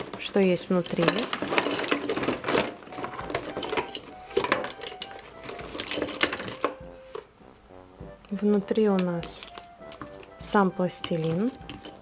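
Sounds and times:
plastic tubs clattering: 0.0s - 7.3s, 8.8s - 12.0s
cardboard box rustling: 0.9s - 7.3s
soft background music: 2.4s - 12.0s.

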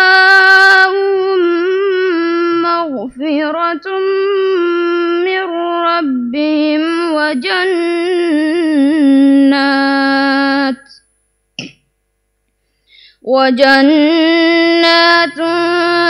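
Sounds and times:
short breath: 12.6s - 13.2s.

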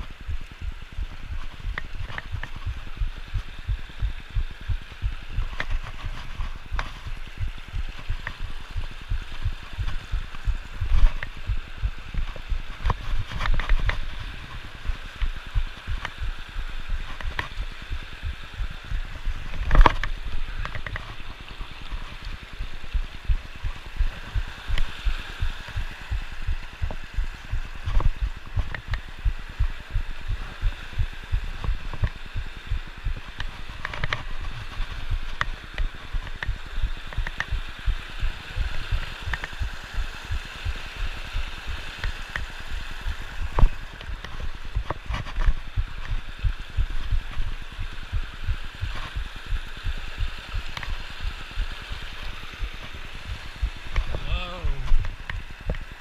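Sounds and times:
creek rushing over rocks: 0.0s - 56.0s.

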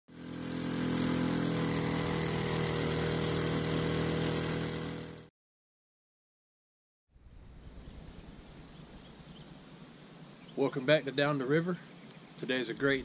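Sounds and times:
boat motor droning: 0.1s - 5.3s.

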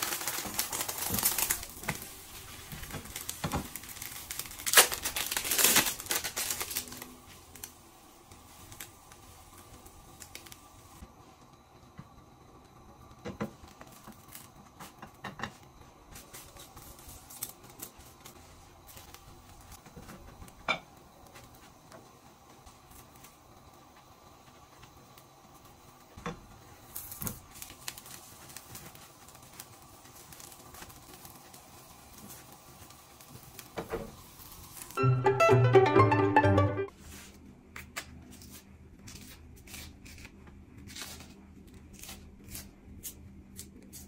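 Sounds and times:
loud music: 35.0s - 36.9s.

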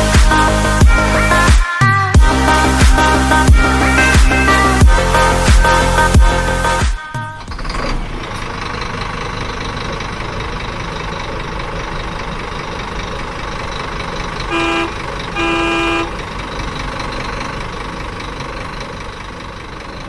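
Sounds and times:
truck engine running: 0.0s - 20.0s
truck horn blasts: 14.4s - 16.3s.

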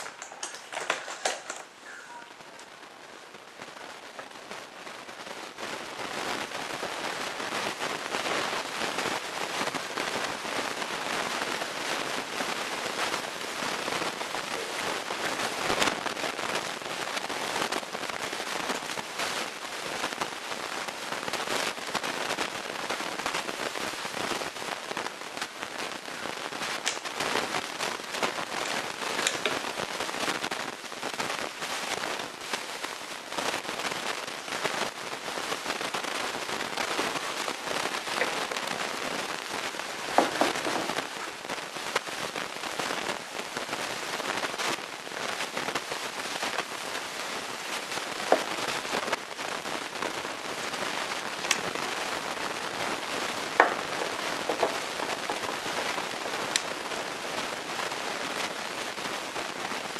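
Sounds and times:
crackling of small clicks: 0.0s - 2.8s, 21.2s - 34.9s, 51.4s - 51.8s, 53.5s - 56.8s.

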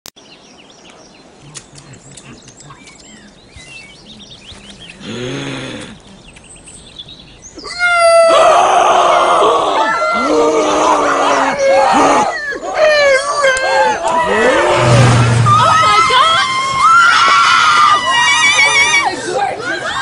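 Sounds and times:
faint bird chirps: 0.2s - 8.0s
low grunt: 5.0s - 6.0s.

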